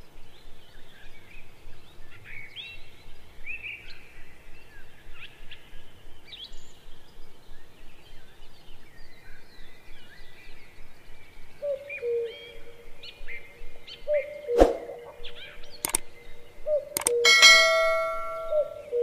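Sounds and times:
birds chirping and calling: 0.8s - 19.0s
low hooting call: 11.6s - 19.0s.

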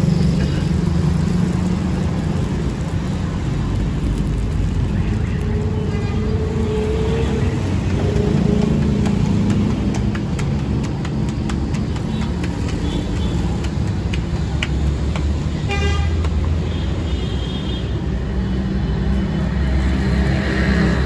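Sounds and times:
sharp clicks and ticks: 0.0s - 16.7s
street traffic rumbling: 0.0s - 21.0s
vehicle horn: 15.7s - 16.2s.

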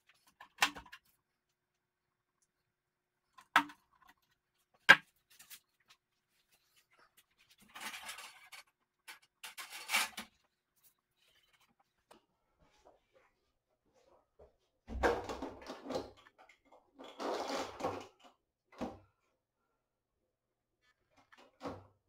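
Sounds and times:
plastic parts rustling and scraping: 3.3s - 12.0s, 15.3s - 18.4s.

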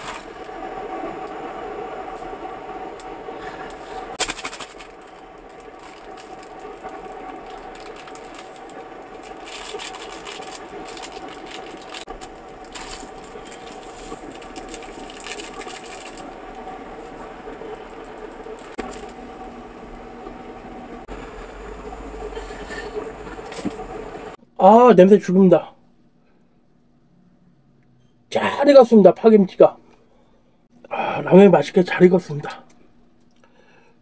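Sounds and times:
cooker mechanical hum: 0.0s - 34.0s
plastic sachets crinkling: 4.2s - 19.2s.

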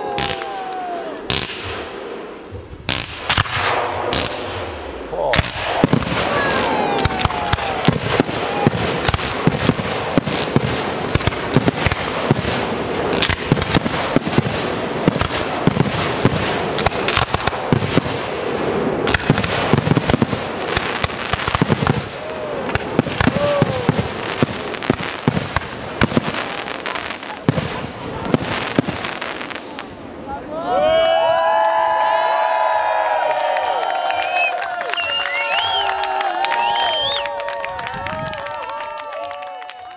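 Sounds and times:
fireworks whistling: 0.0s - 29.9s, 34.1s - 37.4s
fireworks bangs: 0.0s - 30.4s
fireworks crackling: 0.0s - 30.5s, 33.1s - 39.9s.

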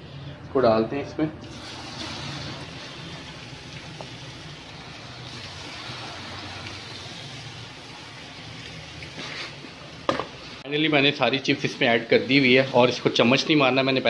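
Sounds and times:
oil sizzling in a frying pan: 1.5s - 10.6s.

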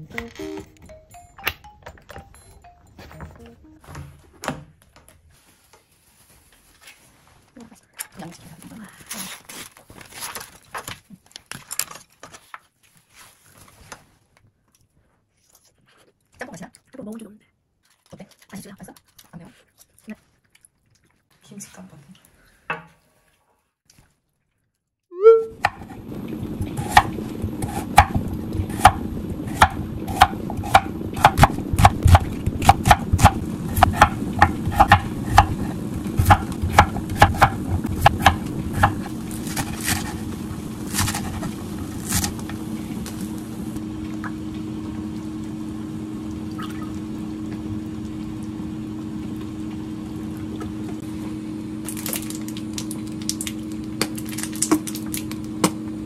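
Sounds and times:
steady low hum: 25.6s - 56.0s
knife chopping on wooden board: 26.8s - 40.2s.

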